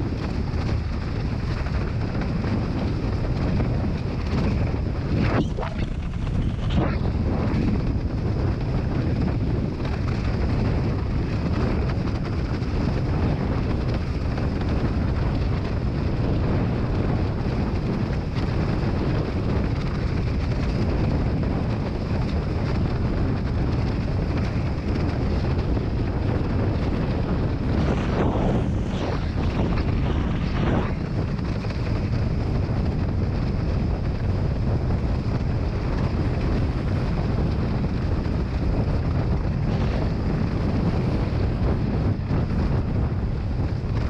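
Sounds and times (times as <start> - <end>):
wind buffeting microphone: 0.0 - 44.0
water rushing under board: 5.0 - 7.9.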